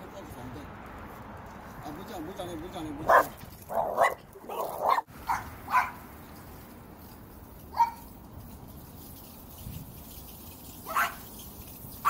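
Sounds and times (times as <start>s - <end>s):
dog barking angrily: 3.0s - 6.0s, 7.8s - 8.0s, 10.9s - 11.2s.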